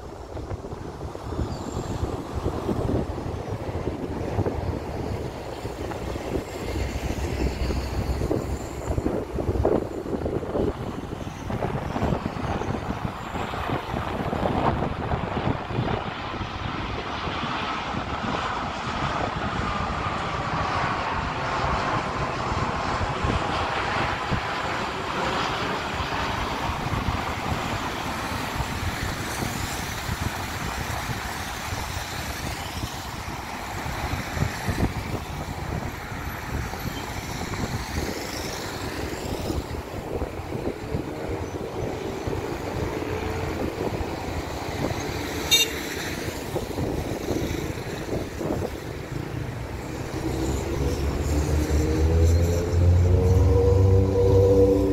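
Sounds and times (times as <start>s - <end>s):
jet aircraft roar overhead: 0.0s - 54.9s
jet engine whine falling: 48.0s - 54.9s.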